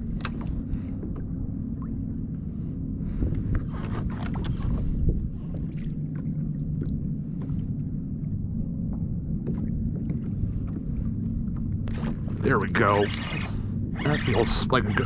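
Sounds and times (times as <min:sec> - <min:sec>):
waves lapping against kayak hull: 0:00.0 - 0:15.0
wind rumbling on microphone: 0:00.0 - 0:15.0
light ticks and splashes: 0:05.5 - 0:15.0.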